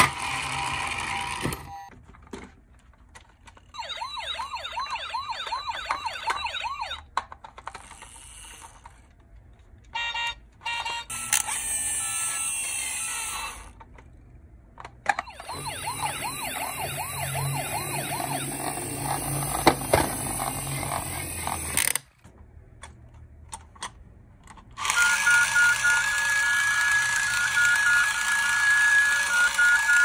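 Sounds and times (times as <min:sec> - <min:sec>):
toy siren wailing: 0:03.8 - 0:07.0, 0:10.0 - 0:13.6, 0:15.1 - 0:21.7, 0:24.8 - 0:30.0.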